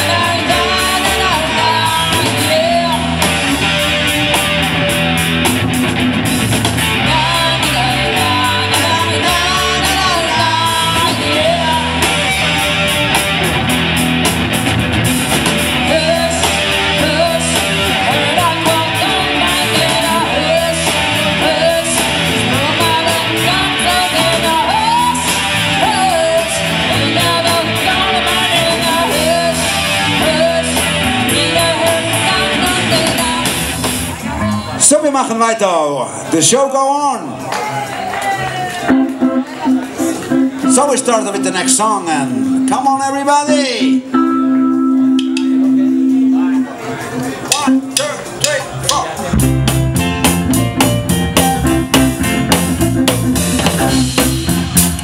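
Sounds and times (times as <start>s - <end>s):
person singing: 0.0s - 4.2s, 6.8s - 12.7s, 15.7s - 33.8s
rock band playing: 0.0s - 55.0s.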